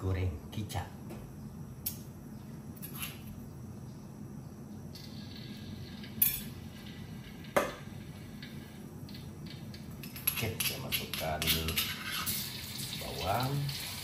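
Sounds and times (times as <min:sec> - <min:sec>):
metal spoon clinking on stone: 0:10.0 - 0:12.0.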